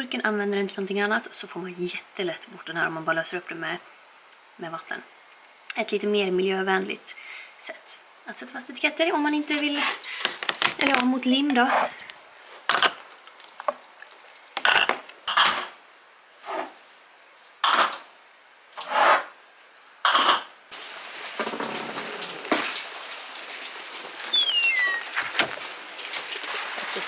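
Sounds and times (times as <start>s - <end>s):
rain pattering: 8.7s - 15.3s, 20.7s - 27.0s
high descending chirp: 24.3s - 25.1s.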